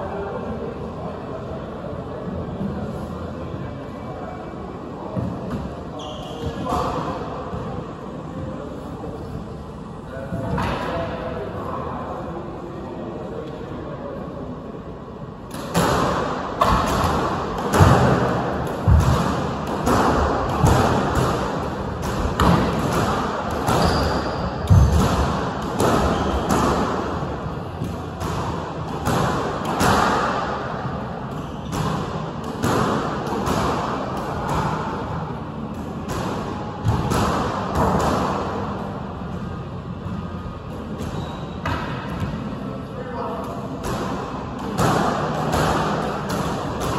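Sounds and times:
squash ball hitting rackets and walls: 15.4 - 42.7, 43.4 - 46.9.

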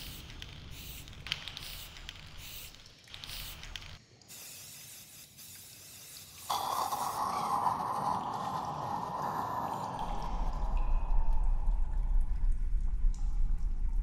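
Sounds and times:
spray-paint can hissing: 0.0 - 7.4.

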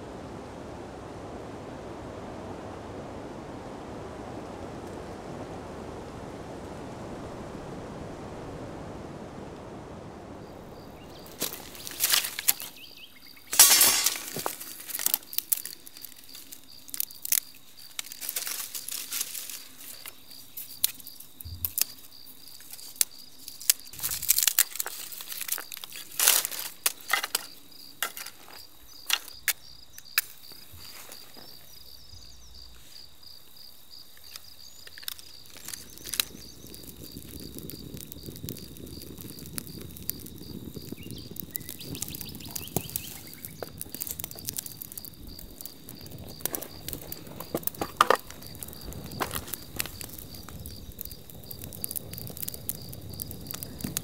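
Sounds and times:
fire rushing noise: 0.0 - 22.2, 23.2 - 54.0
insect trilling: 10.4 - 54.0
sticks snapping and clattering: 11.2 - 12.8, 13.5 - 21.0, 21.6 - 22.0, 22.6 - 31.3, 34.2 - 37.0, 41.6 - 54.0.

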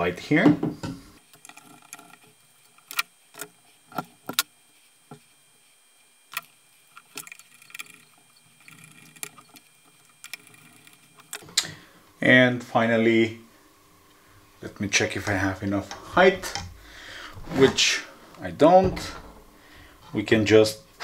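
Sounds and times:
screwdriver working: 6.3 - 11.4.

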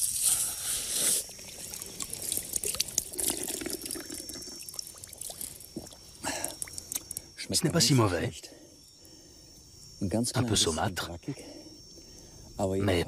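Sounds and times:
water dripping and trickling: 1.2 - 7.3.

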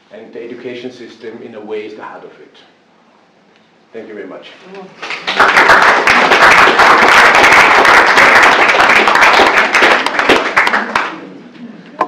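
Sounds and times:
audience applauding: 5.0 - 11.4.

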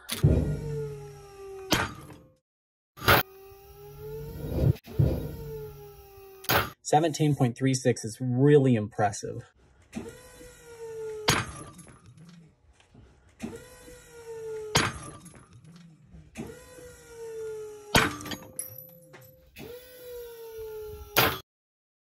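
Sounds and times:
test rig whine: 3.2 - 6.5.

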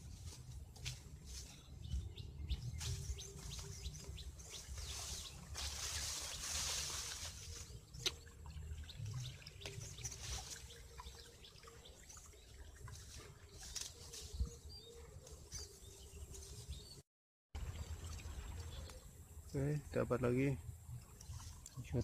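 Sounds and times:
footsteps on grass: 0.0 - 8.2, 9.8 - 11.0
grass rustling: 0.0 - 8.5, 9.2 - 11.2, 12.7 - 17.0.

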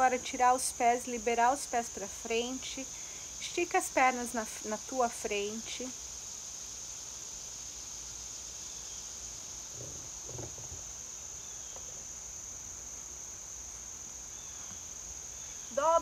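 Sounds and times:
high-pitched insect chorus: 0.0 - 16.0
faint rustle: 9.0 - 15.7.

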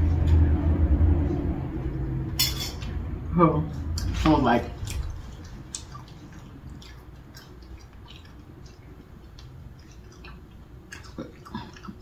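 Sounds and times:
person chewing food: 4.8 - 12.0.

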